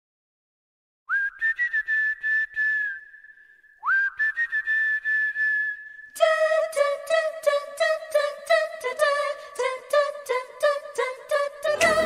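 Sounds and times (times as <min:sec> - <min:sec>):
whistled melody: 0:01.1 - 0:11.6.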